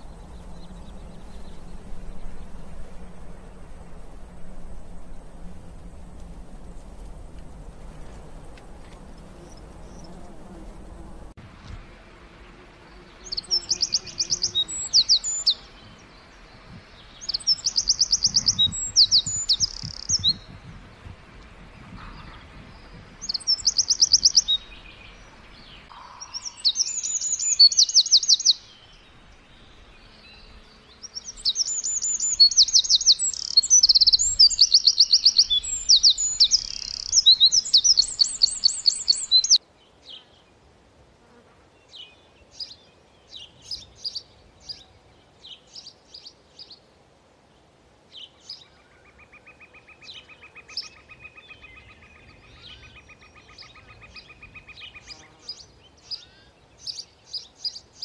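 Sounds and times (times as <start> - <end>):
wren trilling song: 0.0 - 11.1, 12.8 - 20.8, 21.6 - 40.3.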